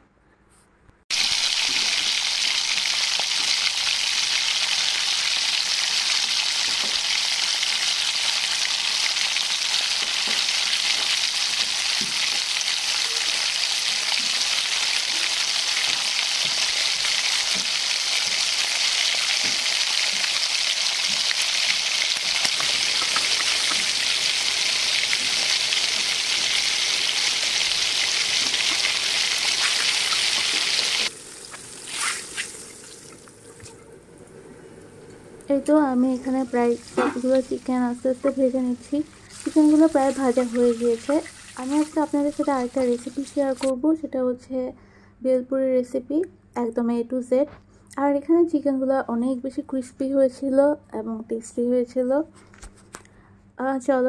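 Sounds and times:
chicken sizzling in hot oil: 0:01.1 - 0:33.2, 0:35.9 - 0:43.7.

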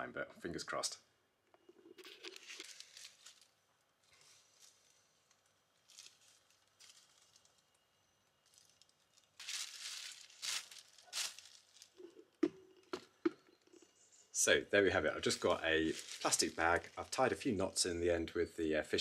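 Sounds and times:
plastic bag crinkling: 0:02.0 - 0:12.4, 0:15.2 - 0:17.4.

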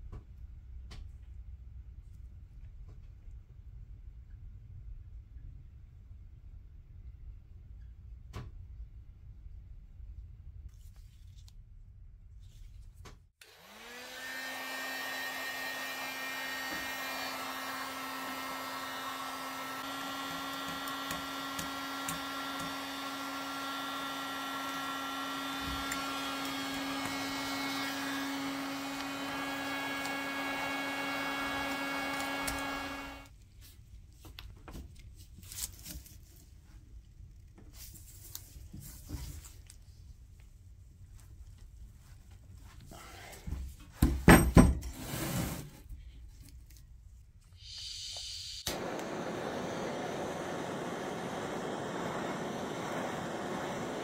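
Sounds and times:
heat gun blowing air: 0:13.4 - 0:33.3, 0:47.6 - 0:54.0.

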